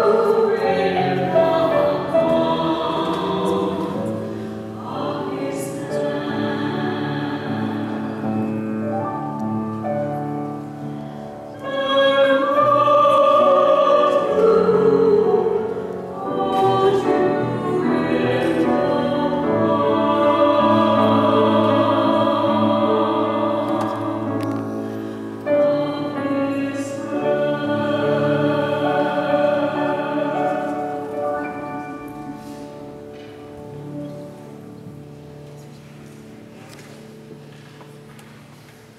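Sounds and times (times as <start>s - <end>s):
man and woman singing duet: 11.6s - 24.6s.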